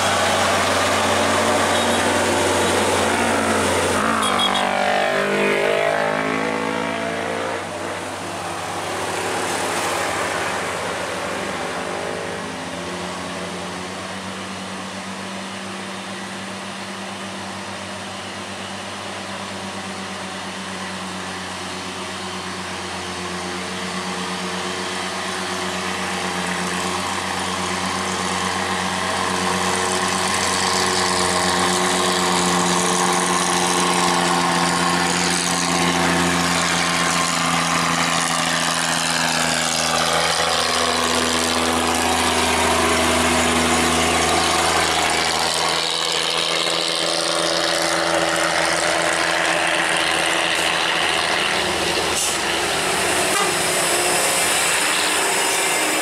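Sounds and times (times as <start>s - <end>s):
diesel trucks passing slowly: 0.0s - 56.0s.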